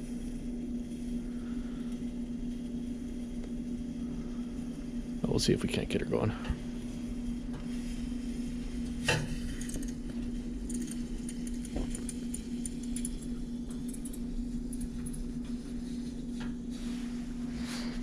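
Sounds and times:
faint crackles: 0.0s - 18.0s
steady low hum: 0.0s - 18.0s
stove flame rushing: 0.0s - 18.0s.

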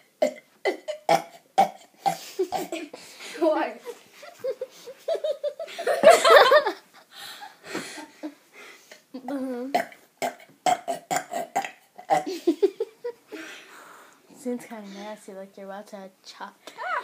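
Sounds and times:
child burping loudly: 0.2s - 2.9s, 9.2s - 12.4s
laughter and giggles: 3.8s - 7.1s, 12.3s - 13.4s.

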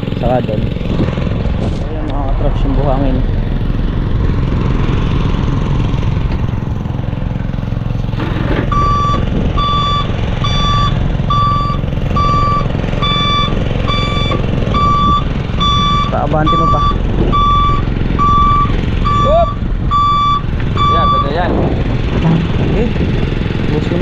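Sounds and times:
truck engine running: 0.0s - 24.0s
reversing alarm beeping: 8.7s - 21.4s.

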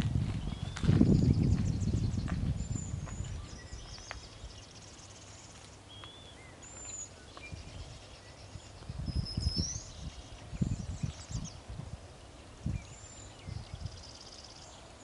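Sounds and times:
footsteps on gravel: 0.0s - 4.5s
birds chirping and whistling: 0.3s - 11.9s, 12.6s - 14.9s.

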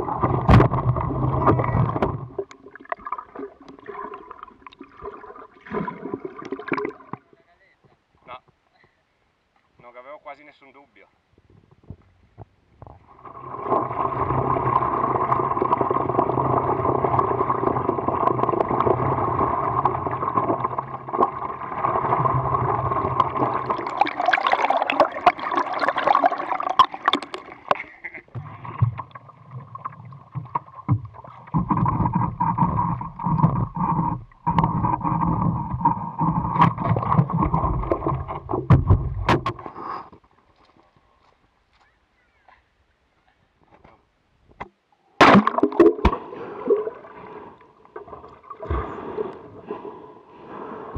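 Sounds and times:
water sloshing and splashing: 0.0s - 7.4s, 13.1s - 39.8s, 45.2s - 49.6s.

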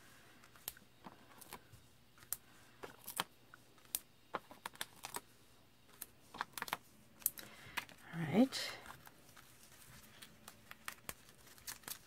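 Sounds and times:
paper rustling: 8.7s - 12.0s.

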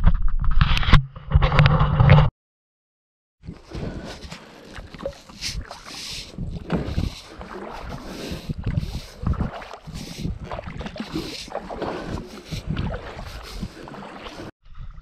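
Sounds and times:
paddle splashing through water: 3.5s - 14.5s.

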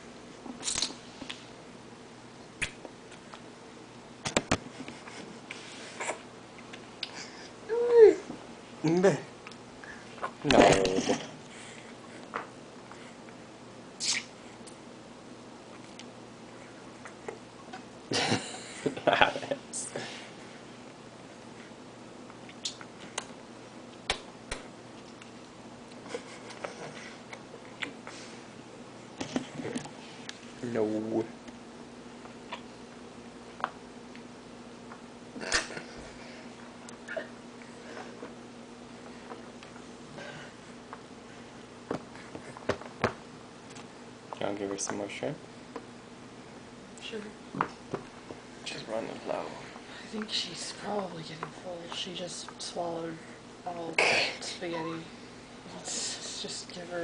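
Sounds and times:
wet sucking and smacking: 0.6s - 1.4s, 14.0s - 14.8s, 22.4s - 23.3s.

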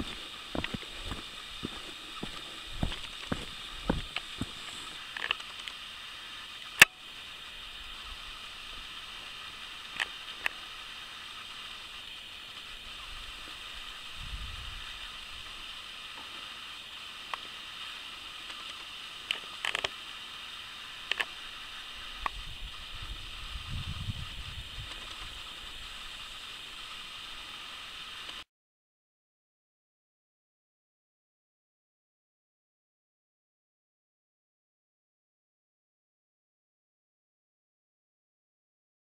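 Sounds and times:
faint outdoor hiss: 0.0s - 28.5s
sharp click: 6.8s - 7.0s.

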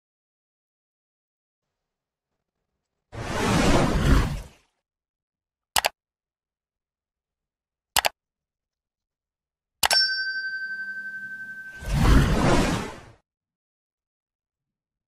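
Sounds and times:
whoosh: 3.2s - 4.5s, 11.4s - 13.2s
mouse clicks: 5.8s - 6.0s, 8.0s - 8.2s
notification bell ding: 9.8s - 12.0s.

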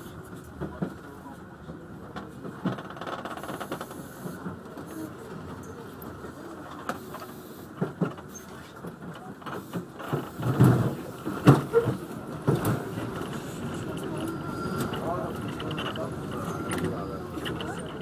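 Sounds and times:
train running noise: 0.0s - 18.0s
wheels knocking on rails: 7.8s - 18.0s.

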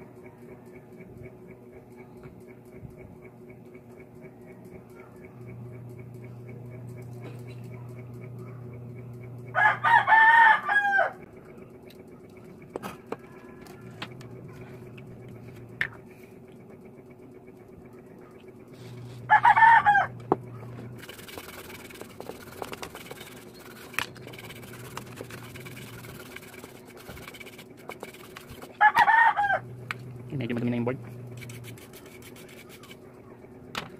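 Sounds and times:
rooster crowing: 9.5s - 11.2s, 19.3s - 20.2s, 28.8s - 29.7s.

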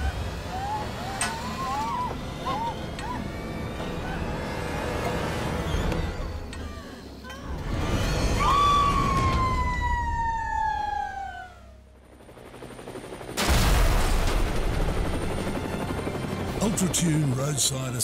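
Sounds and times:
helicopter rotor roar: 0.0s - 18.0s
falling whistle sound effect: 8.1s - 11.8s.

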